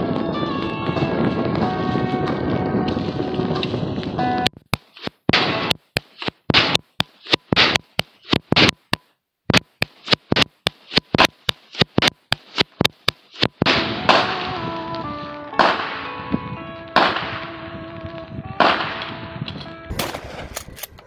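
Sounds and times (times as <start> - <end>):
music with held notes: 0.0 - 4.5, 13.8 - 19.9
rifle shots: 5.0 - 8.8, 10.0 - 14.6, 15.6 - 16.3, 17.0 - 17.6, 18.6 - 19.2, 19.9 - 20.9
loud bangs in music: 13.6 - 14.7, 15.6 - 16.2, 17.0 - 17.5, 18.6 - 19.1.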